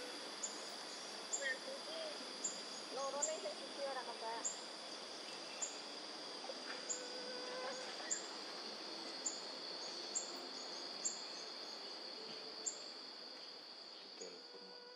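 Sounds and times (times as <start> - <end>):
high-pitched insect drone: 0.0 - 14.9.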